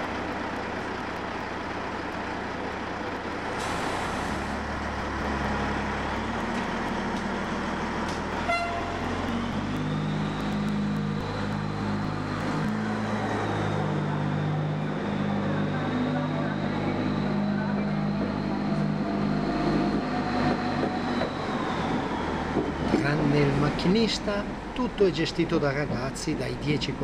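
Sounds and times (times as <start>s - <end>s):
diesel locomotive engine revving: 0.0s - 27.0s
horn toot: 8.4s - 9.0s.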